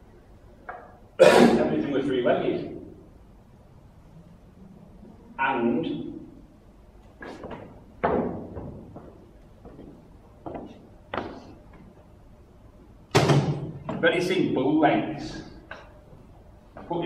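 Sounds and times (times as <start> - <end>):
wooden chairs thumping on floor: 7.2 - 11.5.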